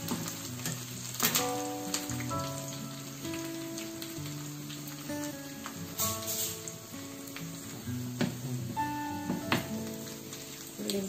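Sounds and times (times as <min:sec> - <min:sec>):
plucked acoustic guitar music: 0:00.0 - 0:11.0
brief hiss: 0:06.0 - 0:06.7.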